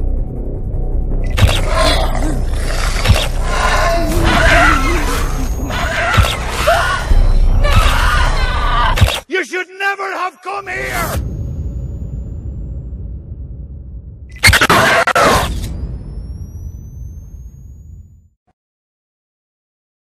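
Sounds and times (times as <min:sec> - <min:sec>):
low rumbling drone: 0:00.0 - 0:08.7, 0:11.4 - 0:14.4
creature-like shrieks and growls: 0:01.3 - 0:09.2, 0:14.4 - 0:15.7.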